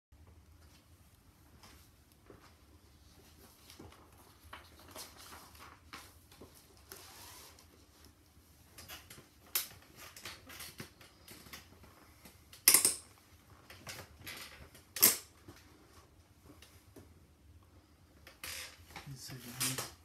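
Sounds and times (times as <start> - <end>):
paper sheet music rustling: 1.6 - 8.2.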